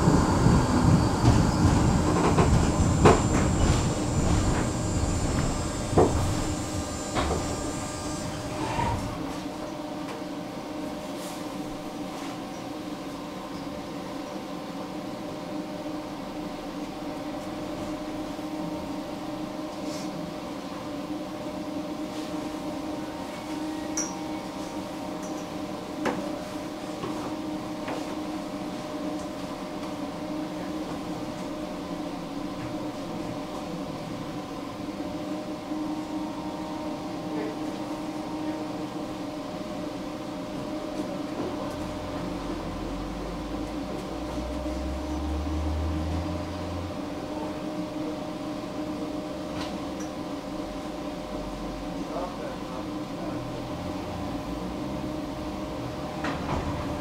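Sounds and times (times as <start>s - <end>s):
low rumble: 0.0s - 9.1s
tram electrical hum: 0.0s - 57.0s.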